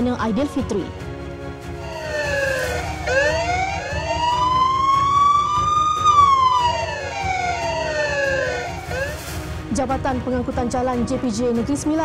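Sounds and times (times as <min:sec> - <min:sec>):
siren wailing: 0:01.8 - 0:09.3.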